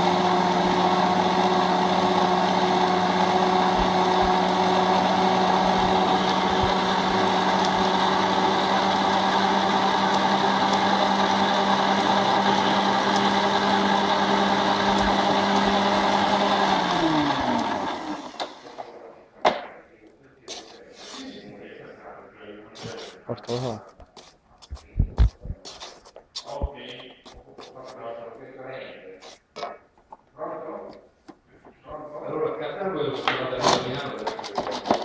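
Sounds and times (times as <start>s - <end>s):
mortar mixer motor running: 0.0s - 18.9s.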